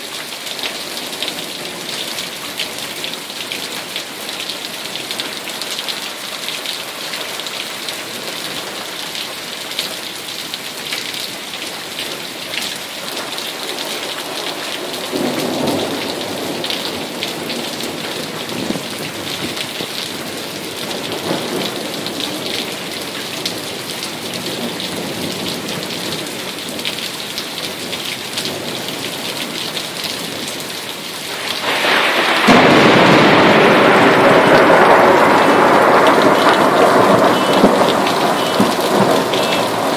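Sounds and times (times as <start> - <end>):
rain pattering: 0.0 - 39.9
rush of heavy rain: 0.0 - 39.9
low thunder rumbling: 31.3 - 39.9.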